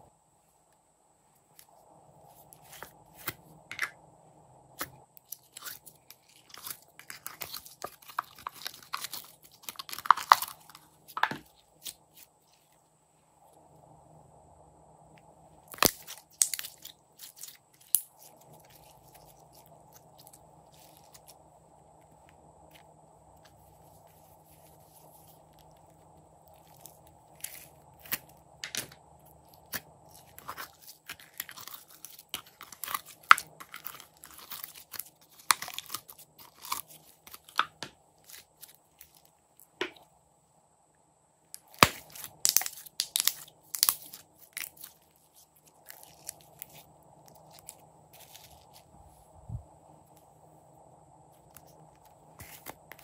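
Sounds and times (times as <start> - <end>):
sticky slime pops and crackles: 41.6 - 44.9.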